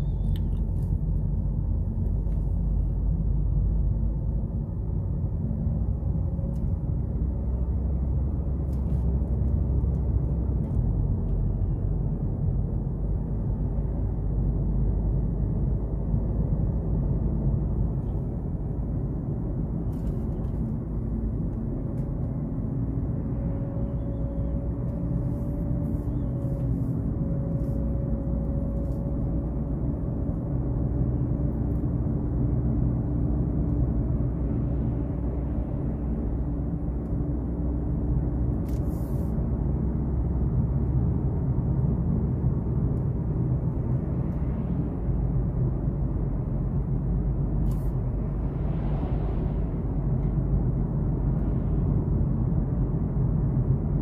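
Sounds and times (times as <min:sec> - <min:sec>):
car road and engine rumble: 0:00.0 - 0:54.0.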